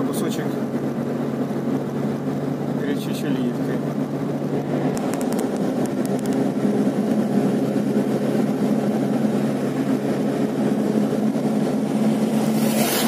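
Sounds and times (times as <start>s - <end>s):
car engine hum: 0.0s - 13.0s
tyre noise on asphalt: 12.2s - 13.0s.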